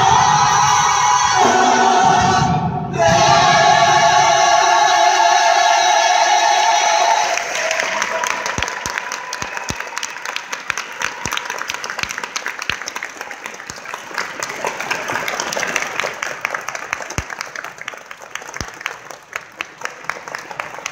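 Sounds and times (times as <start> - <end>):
audience applauding: 7.2 - 20.9.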